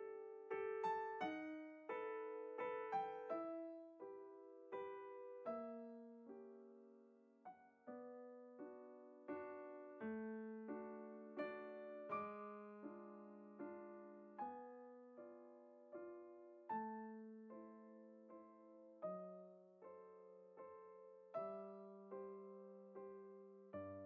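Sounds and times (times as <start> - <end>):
soft piano chords: 0.0 - 24.0.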